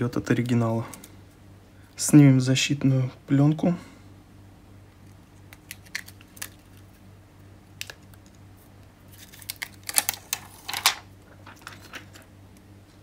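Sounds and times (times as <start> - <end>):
plastic film clicks: 5.5 - 6.8, 7.8 - 8.4, 9.2 - 11.0
plastic film crackling: 5.5 - 7.0, 9.1 - 10.8.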